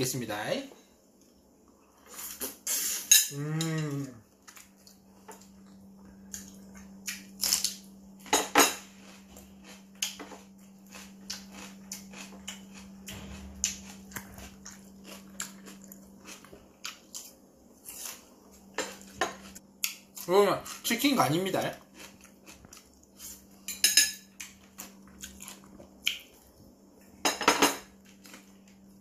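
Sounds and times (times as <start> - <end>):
steady low hum: 0.0 - 29.0
person humming: 3.3 - 4.2
chewing food: 8.8 - 20.9, 21.6 - 23.4, 24.4 - 26.6.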